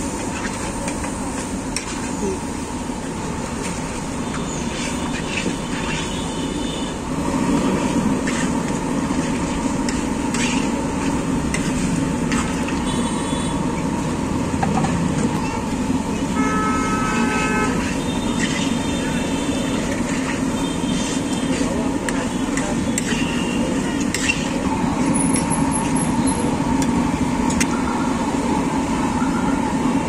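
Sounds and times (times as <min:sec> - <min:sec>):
traffic rumble: 0:00.0 - 0:30.0
vehicle horn beep: 0:06.0 - 0:07.0, 0:12.8 - 0:13.6, 0:16.3 - 0:19.7.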